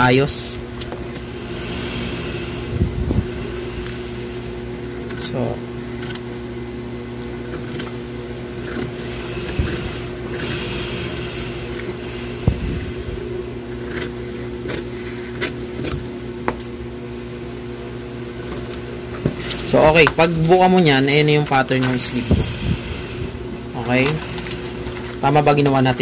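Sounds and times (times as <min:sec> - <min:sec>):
mechanical hum: 0:00.0 - 0:26.0
shears cutting paper: 0:01.2 - 0:05.4, 0:08.6 - 0:13.2, 0:18.4 - 0:26.0.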